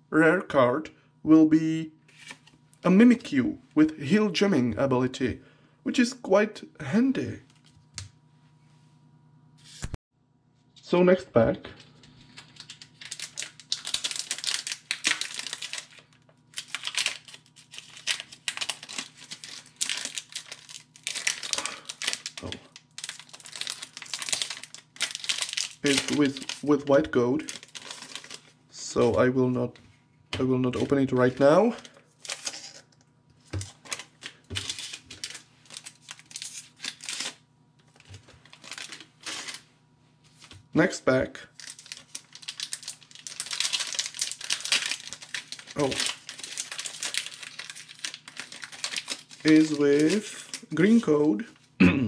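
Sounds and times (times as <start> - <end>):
trading cards being handled: 11.7 - 26.8, 27.4 - 29.2, 30.4 - 40.7, 41.6 - 51.4
foil wrapper crinkling: 11.8 - 28.6, 30.8 - 32.8, 33.4 - 39.7, 41.5 - 51.7.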